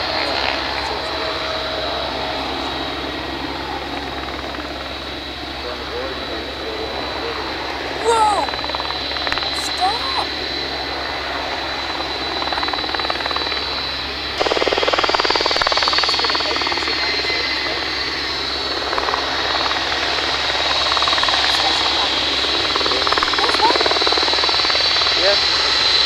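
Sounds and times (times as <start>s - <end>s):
helicopter hovering: 0.0s - 26.0s.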